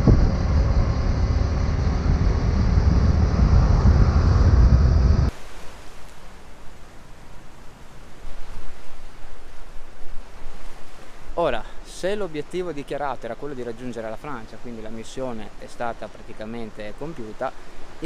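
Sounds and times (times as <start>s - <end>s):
scooter road noise: 0.0s - 5.3s
wind buffeting microphone: 0.0s - 5.3s
small waves on rocky shore: 5.3s - 11.8s.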